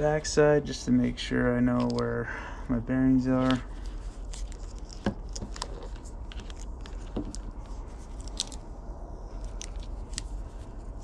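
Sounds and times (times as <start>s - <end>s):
tape and wires crinkling: 1.4s - 2.2s, 3.1s - 11.0s.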